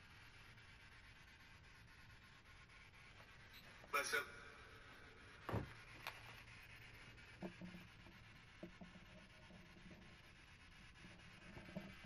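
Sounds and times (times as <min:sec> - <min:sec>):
faint clicks and rustles: 0:05.4 - 0:12.0.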